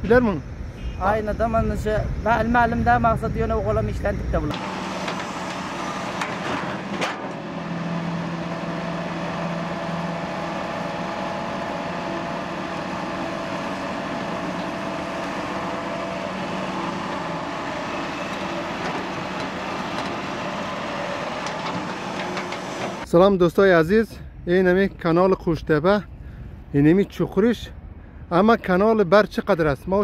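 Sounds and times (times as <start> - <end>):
diesel excavator engines running: 0.0 - 23.2.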